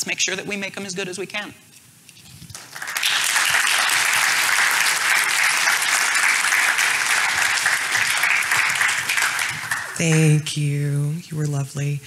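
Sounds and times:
audience applauding: 2.5s - 10.3s.

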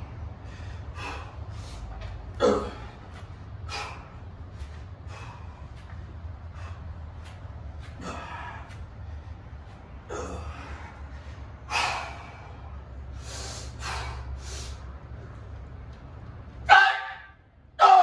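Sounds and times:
man breathing forcefully: 0.0s - 15.2s.

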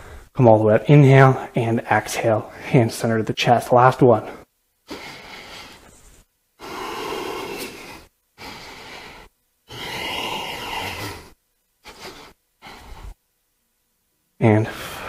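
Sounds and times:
man breathing hard: 0.0s - 0.3s, 4.9s - 5.9s, 6.6s - 13.2s, 14.6s - 15.0s.

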